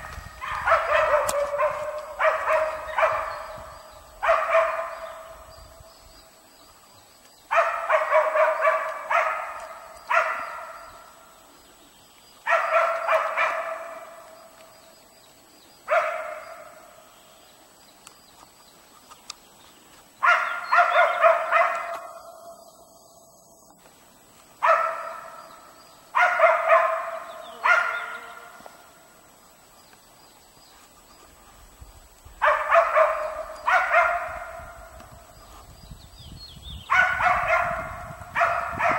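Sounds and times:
dogs barking: 0.0s - 5.5s, 7.5s - 11.2s, 12.4s - 14.4s, 15.9s - 17.0s, 20.2s - 22.6s, 24.6s - 29.2s, 32.4s - 35.2s, 36.9s - 38.9s.

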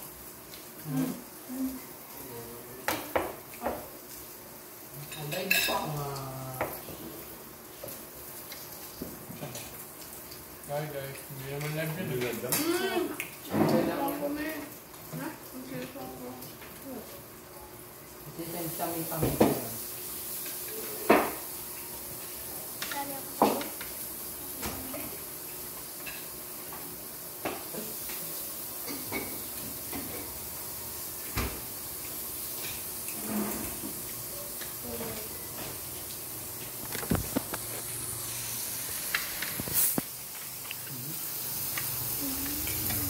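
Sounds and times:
meat sizzling on grill pan: 0.0s - 43.0s
utensils and dishes clinking: 5.0s - 6.2s, 41.7s - 43.0s.

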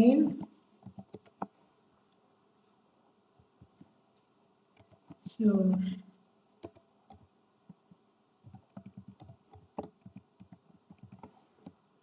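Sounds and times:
typing on computer keyboard: 0.4s - 1.5s, 4.8s - 5.3s, 6.6s - 7.3s, 8.4s - 11.8s.

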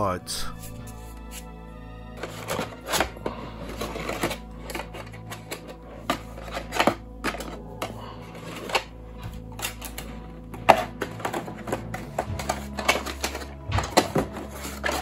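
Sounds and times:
plastic cards and tray clicking: 2.2s - 15.0s.

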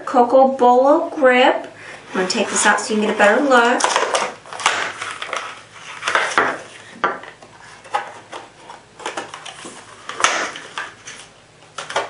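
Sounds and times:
plastic packaging crackling: 2.9s - 6.9s.

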